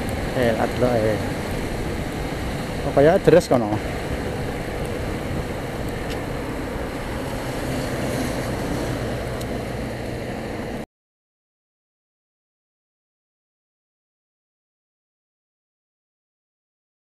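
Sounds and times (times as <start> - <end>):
motorcycle engine hum: 0.0 - 10.8
tyre noise on wet road: 0.0 - 10.8
wind rushing over microphone: 0.0 - 10.8.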